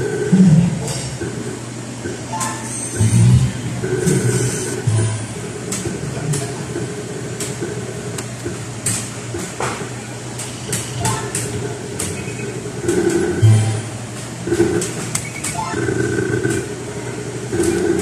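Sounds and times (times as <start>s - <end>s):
steady hum: 0.0s - 18.0s.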